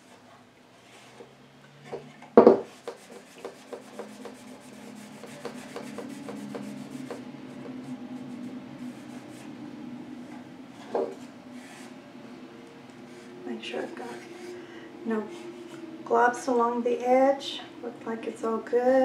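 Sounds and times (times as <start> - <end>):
cloth rubbing wood: 2.6 - 9.6.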